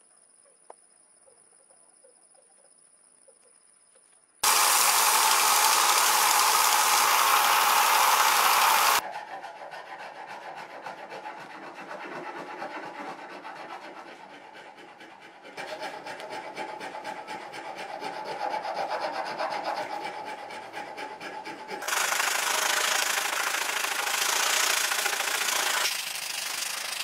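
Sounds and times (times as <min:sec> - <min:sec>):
sandpaper rubbing on wood: 0:04.4 - 0:09.0, 0:15.6 - 0:27.0.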